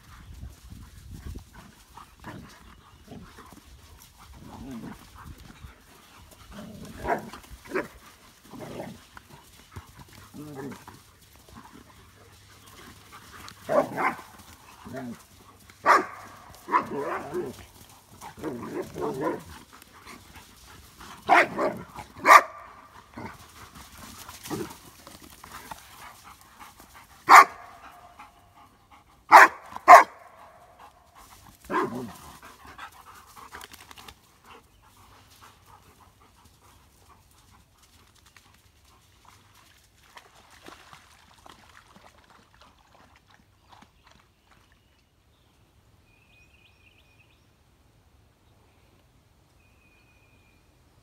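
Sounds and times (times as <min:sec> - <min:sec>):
dogs growling: 0:02.0 - 0:25.8
dogs barking: 0:13.6 - 0:14.3, 0:15.8 - 0:17.6, 0:21.3 - 0:22.8, 0:27.3 - 0:28.2, 0:29.3 - 0:30.6, 0:31.7 - 0:32.1.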